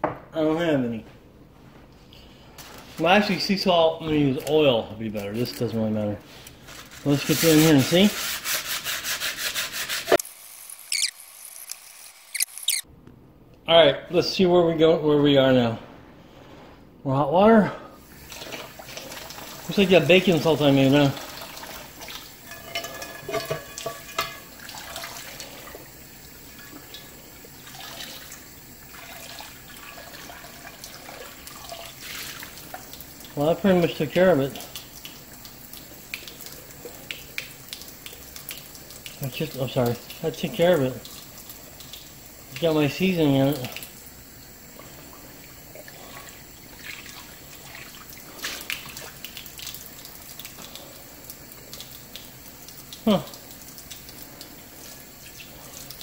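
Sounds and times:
faucet water splashing into skillet: 0:18.0 - 0:56.0
water pouring into sink: 0:18.0 - 0:56.0.

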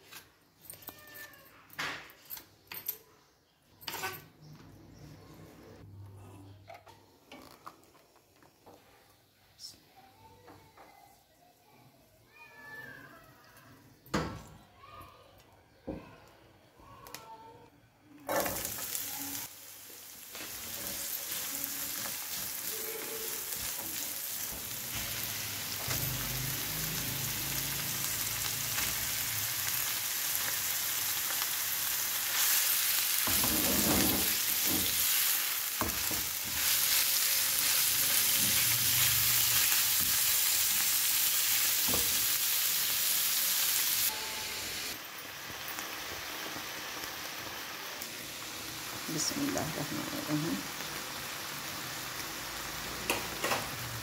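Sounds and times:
onion and chicken sizzling in oil: 0:18.2 - 0:54.0.

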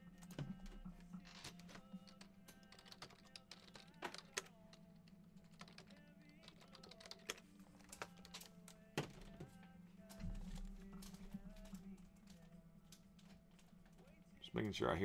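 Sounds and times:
low steady hum: 0:00.0 - 0:15.0
keyboard and mouse clicks: 0:00.2 - 0:09.5.

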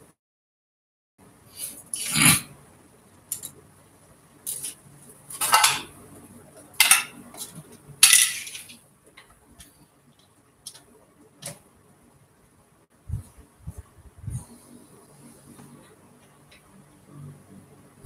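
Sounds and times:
metal parts and tools clinking: 0:06.8 - 0:08.8.

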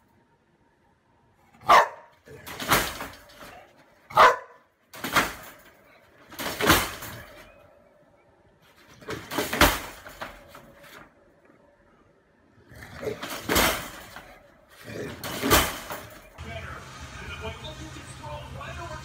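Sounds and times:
wire dog crate rattling: 0:01.7 - 0:07.6, 0:08.8 - 0:11.0, 0:13.0 - 0:16.4.

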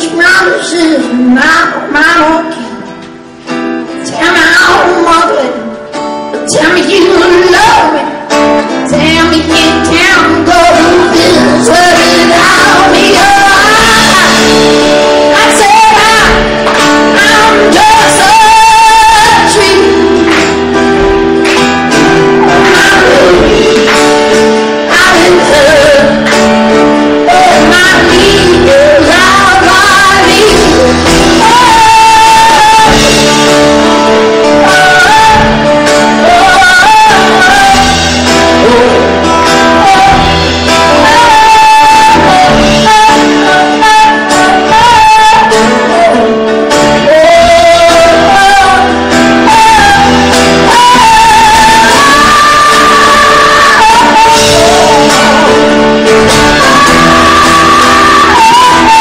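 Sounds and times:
man singing: 0:47.1 - 0:59.0.

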